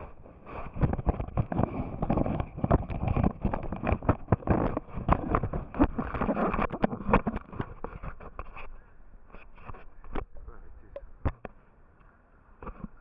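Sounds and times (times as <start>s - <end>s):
fabric rubbing on microphone: 0.0s - 10.0s.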